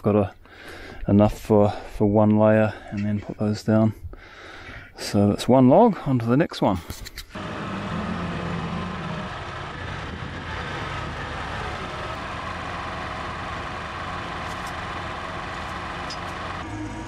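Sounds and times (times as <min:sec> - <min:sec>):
tractor engine running: 0:07.4 - 0:17.0.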